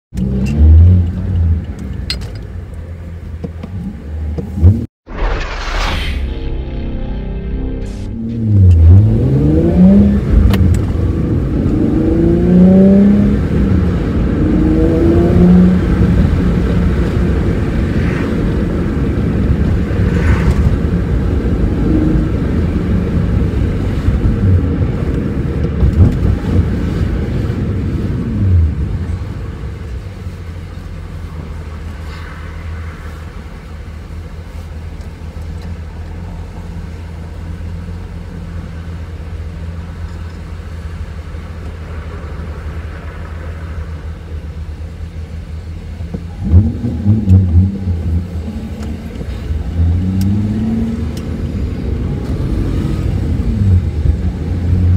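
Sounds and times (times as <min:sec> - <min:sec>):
car engine revving: 0:03.7 - 0:30.3, 0:41.4 - 0:54.9
car engine idling: 0:32.6 - 0:46.4.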